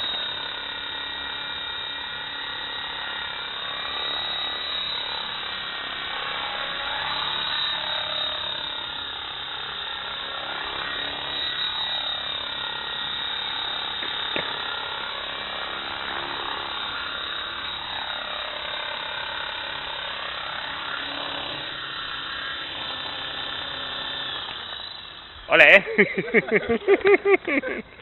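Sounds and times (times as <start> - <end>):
rc helicopter motor whine: 0.0 - 28.0.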